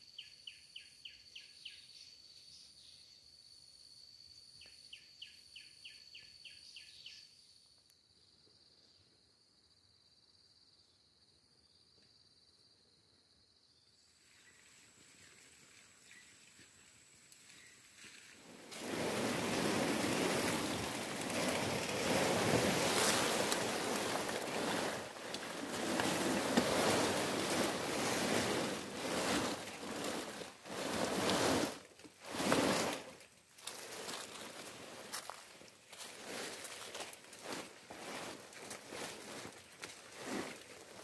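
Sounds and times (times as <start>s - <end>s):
plastic tarp rustling and scraping: 17.5s - 41.0s.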